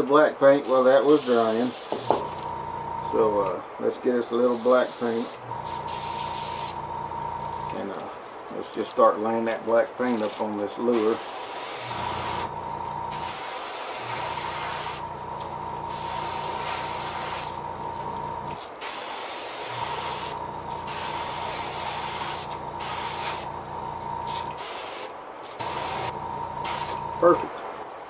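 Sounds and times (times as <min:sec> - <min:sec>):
airbrush spraying hiss: 0:01.0 - 0:02.3, 0:04.4 - 0:06.8, 0:10.9 - 0:12.5, 0:13.1 - 0:15.1, 0:15.9 - 0:17.6, 0:18.8 - 0:23.5, 0:24.4 - 0:27.1
low hum: 0:02.3 - 0:03.6, 0:05.4 - 0:07.8, 0:12.0 - 0:13.2, 0:14.4 - 0:18.6, 0:19.8 - 0:24.5, 0:25.6 - 0:27.4.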